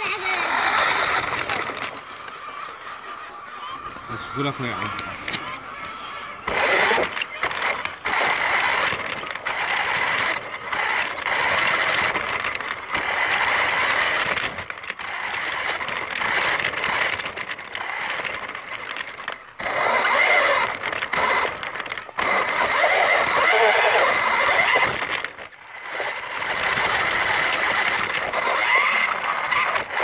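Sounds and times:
toy car motor whirring: 0.0s - 30.0s.

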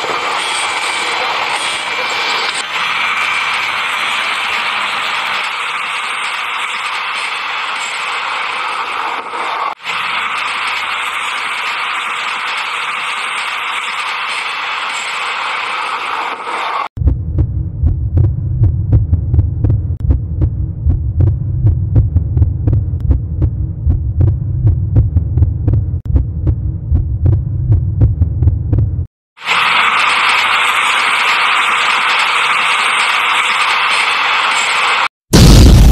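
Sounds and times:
toy train motor whirring: 0.0s - 16.9s, 29.4s - 35.0s
low throbbing hum: 17.0s - 29.1s.

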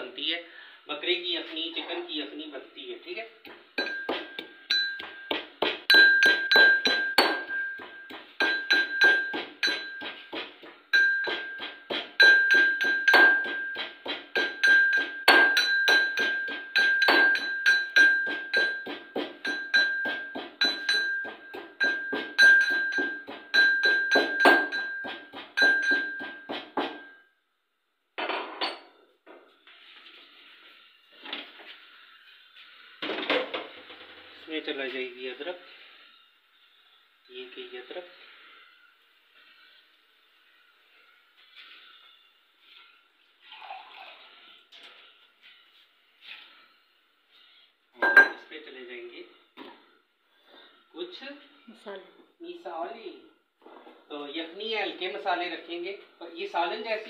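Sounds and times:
metal pestle pounding in mortar: 3.4s - 27.2s.

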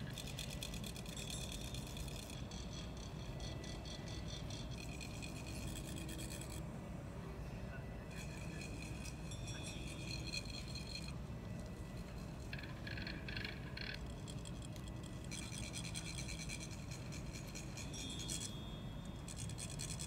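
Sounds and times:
metal funnel rasped with rod: 0.0s - 6.6s, 8.1s - 11.2s, 12.0s - 20.0s
low room hum: 0.0s - 20.0s.

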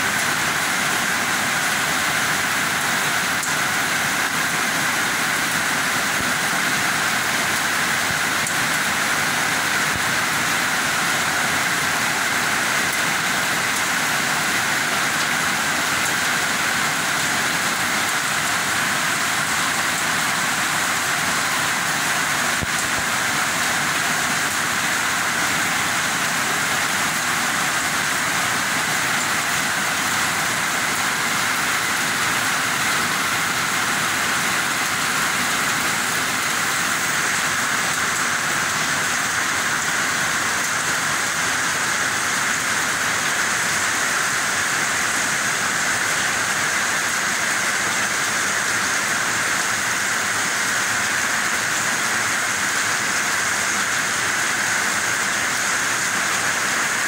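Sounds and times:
heavy rain pouring: 0.0s - 57.0s.

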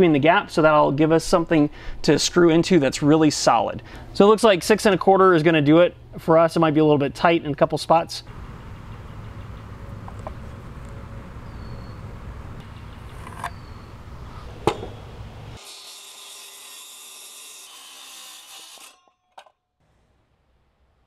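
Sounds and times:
circular saw cutting board: 12.6s - 19.6s.

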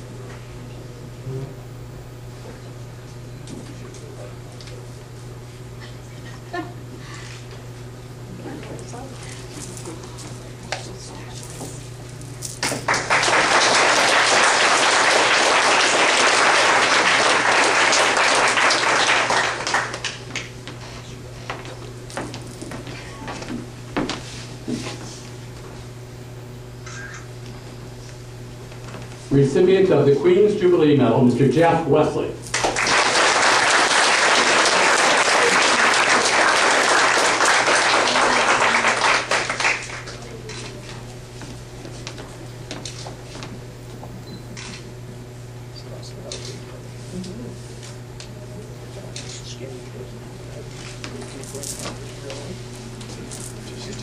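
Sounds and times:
audience applauding: 12.8s - 20.5s, 32.5s - 40.4s.

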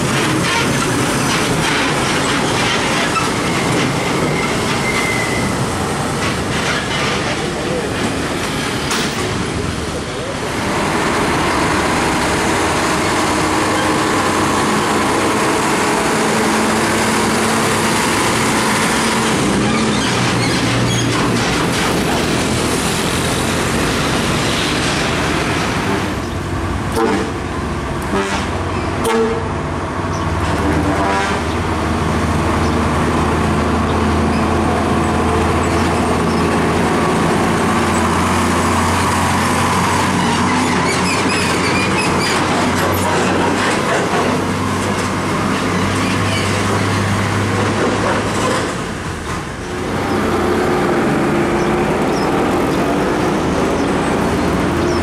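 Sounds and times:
diesel trucks engine drone: 0.0s - 55.0s
truck horn toots: 26.9s - 29.6s, 30.6s - 31.6s.

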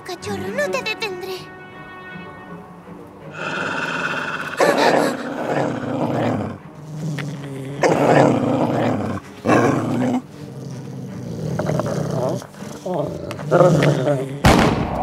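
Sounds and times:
cartoon dogs growling and snarling: 3.4s - 14.6s.

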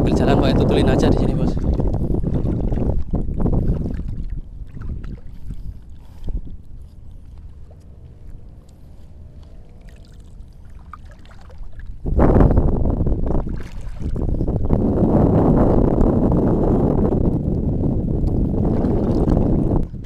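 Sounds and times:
water sloshing around wading person: 0.7s - 14.7s, 18.5s - 20.0s.

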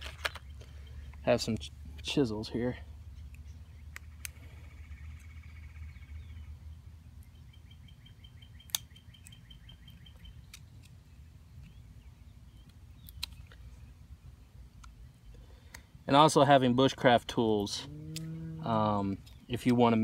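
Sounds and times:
low steady rumble: 10.3s - 20.0s
bird trilling: 17.8s - 18.8s.

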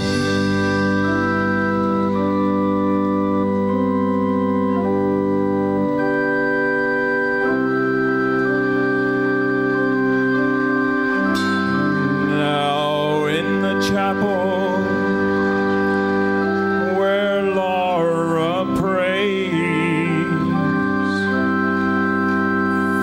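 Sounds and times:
organ sustained chords: 0.0s - 23.0s
man singing with vibrato: 11.6s - 15.6s, 16.8s - 21.8s.

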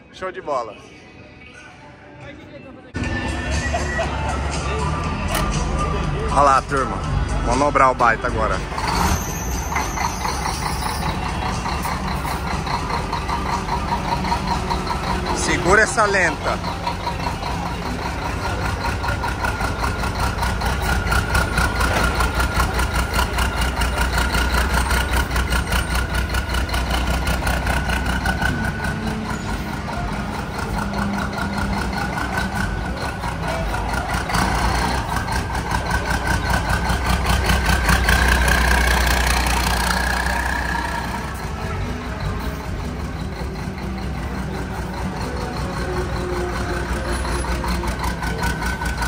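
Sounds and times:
diesel truck engine idling: 2.5s - 49.0s.

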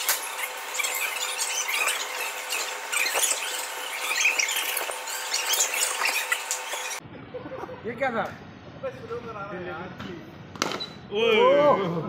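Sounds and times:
short high squeals: 0.0s - 7.0s.

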